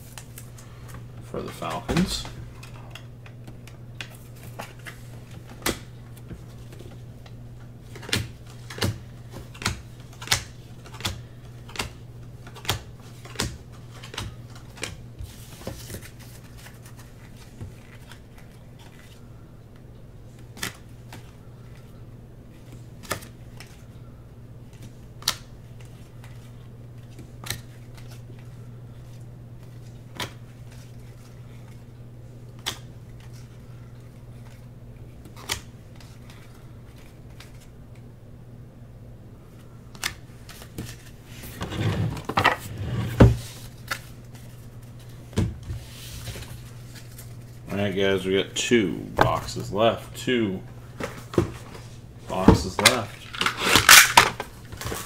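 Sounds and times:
card rustle: 7.9s - 19.3s.

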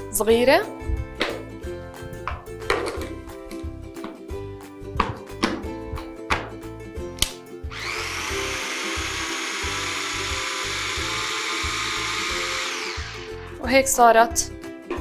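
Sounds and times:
electric food chopper motor: 7.7s - 13.6s.

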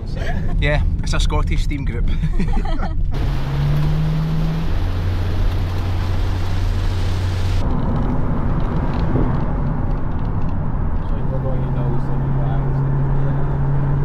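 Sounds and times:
rumble of tyres and wind: 0.0s - 14.0s
low engine drone: 2.1s - 14.0s
road hiss inside moving van: 2.6s - 7.6s.

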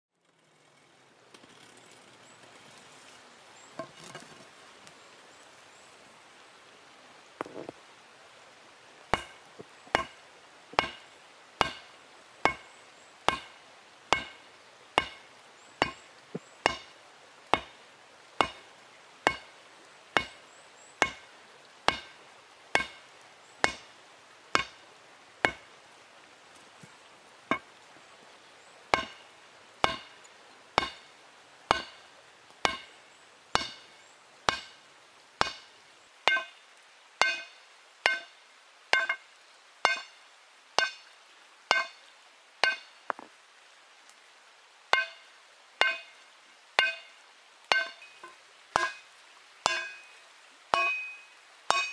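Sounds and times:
hammer striking steel on anvil: 9.2s - 9.4s, 10.0s - 10.2s, 10.8s - 11.0s, 11.6s - 12.7s, 13.3s - 13.5s, 14.1s - 14.4s, 15.0s - 15.2s, 16.6s - 16.9s, 18.4s - 18.6s, 19.3s - 19.5s, 20.2s - 20.4s, 21.9s - 22.2s, 22.8s - 23.0s, 23.6s - 23.9s, 24.6s - 24.8s, 28.9s - 29.2s, 29.8s - 30.1s, 30.8s - 31.1s, 31.7s - 32.0s, 32.6s - 32.9s, 33.6s - 33.9s, 34.5s - 34.8s, 35.4s - 35.7s, 36.3s - 36.5s, 37.2s - 39.2s, 39.8s - 40.2s, 40.8s - 41.1s, 41.7s - 42.0s, 42.6s - 42.9s, 45.0s - 46.1s, 46.8s - 47.1s, 47.7s - 51.9s.

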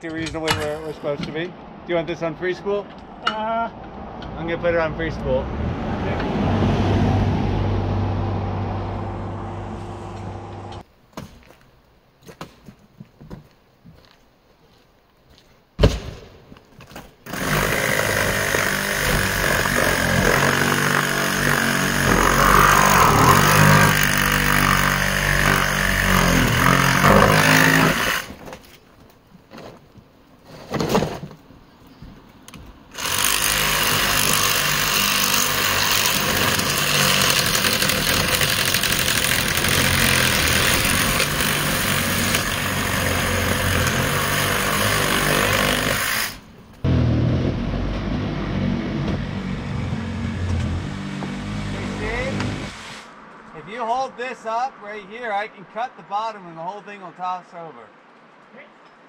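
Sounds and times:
reciprocating saw cutting: 17.2s - 28.4s, 32.9s - 47.1s.

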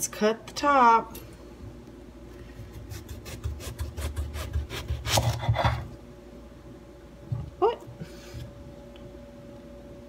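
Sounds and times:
knife sawing through eggplant: 2.7s - 5.9s.

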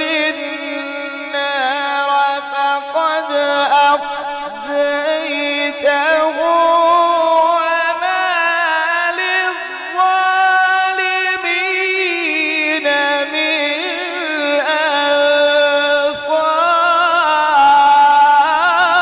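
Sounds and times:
man reciting melodically through microphone: 0.0s - 19.0s.

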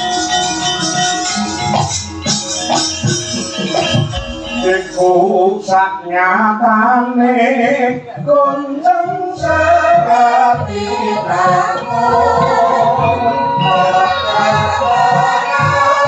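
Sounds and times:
sustained metallic tones: 1.3s - 5.7s
low regular beats: 1.7s - 5.8s
person singing: 3.7s - 16.0s.

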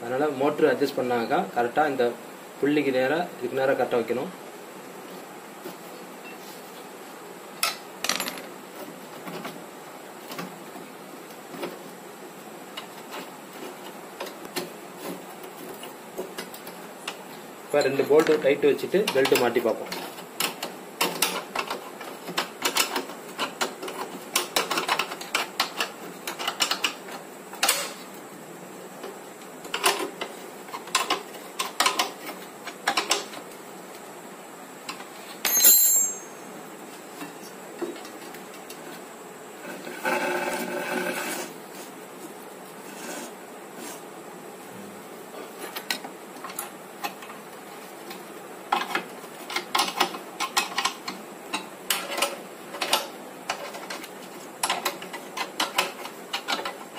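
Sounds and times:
ringing metal clink: 35.4s - 36.5s.

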